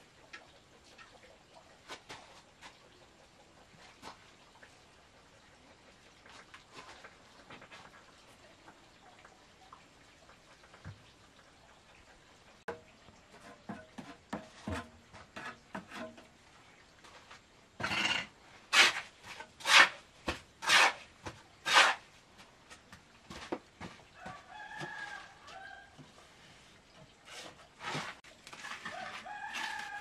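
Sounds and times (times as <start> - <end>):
trowel scraping wet mortar: 17.8 - 22.1
rooster crowing: 24.2 - 26.0, 28.8 - 30.0.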